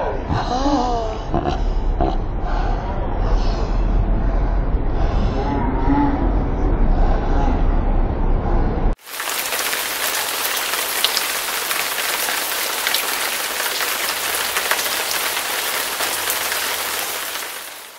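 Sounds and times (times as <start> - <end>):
loud low rumble: 1.6 - 9.0
rain hissing: 9.0 - 17.9
raindrop ticks: 9.1 - 17.9.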